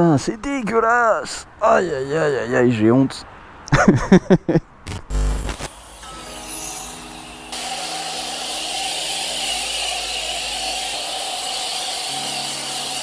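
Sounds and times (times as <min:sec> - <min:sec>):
pressure washer spraying: 0:05.6 - 0:13.0.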